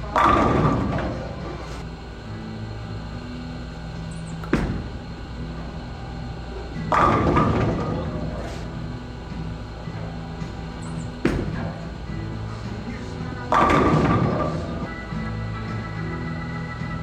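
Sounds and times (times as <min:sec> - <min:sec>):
bowling pins crashing: 0:00.0 - 0:01.8, 0:04.4 - 0:05.8, 0:06.7 - 0:08.7, 0:10.0 - 0:16.3
bowling ball rolling: 0:00.0 - 0:17.0
bowling ball thud on lane: 0:04.4 - 0:05.0, 0:06.8 - 0:08.4, 0:11.0 - 0:11.9, 0:13.4 - 0:15.0.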